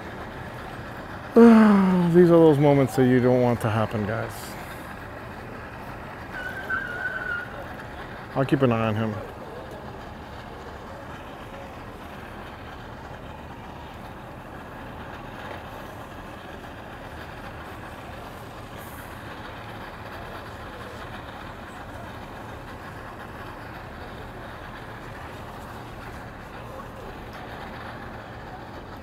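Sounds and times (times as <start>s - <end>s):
engines idling: 0.0s - 29.0s.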